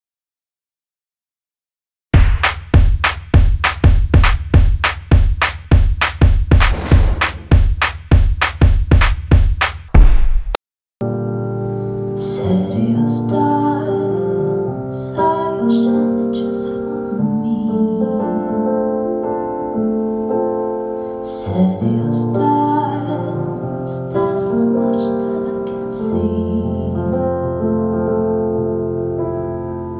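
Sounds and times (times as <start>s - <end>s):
calm keyboard music: 11.0s - 29.9s.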